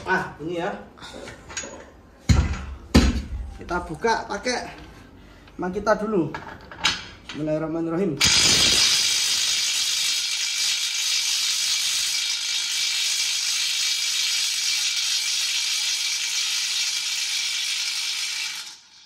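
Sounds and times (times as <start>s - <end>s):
impact wrench hammering: 2.3s - 3.3s.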